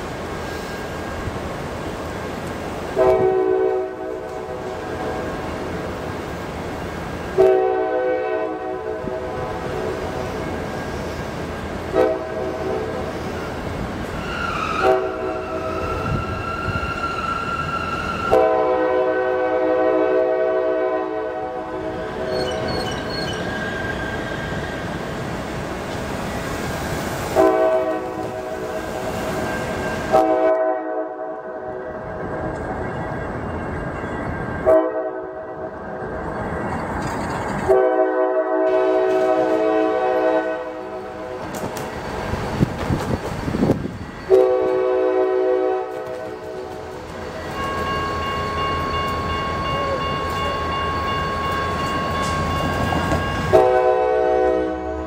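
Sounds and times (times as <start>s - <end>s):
train rumbling on track: 0.0s - 55.0s
locomotive air horn blasts: 3.0s - 4.5s, 7.3s - 9.7s, 11.9s - 13.0s, 14.2s - 16.8s, 18.2s - 22.0s, 27.3s - 28.7s, 30.1s - 32.0s, 34.6s - 35.6s, 37.7s - 41.4s, 44.3s - 46.7s, 53.4s - 55.0s.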